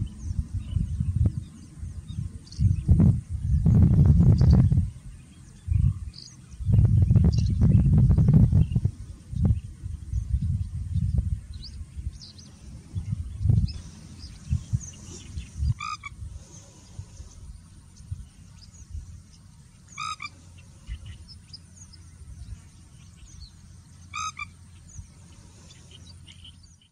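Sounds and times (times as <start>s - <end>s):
bird nasal call: 13.8s - 17.4s, 19.8s - 21.8s, 24.0s - 26.9s.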